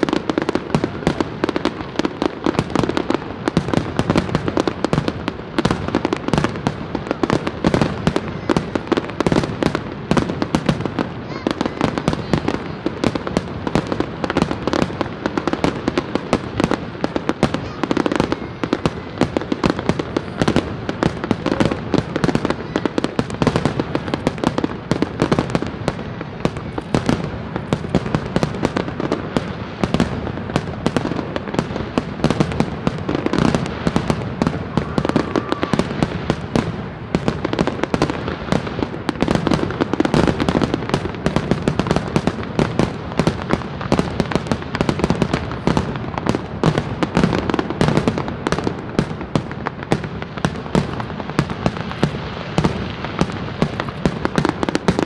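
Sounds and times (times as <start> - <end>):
fireworks bangs and crackling: 0.0 - 55.0.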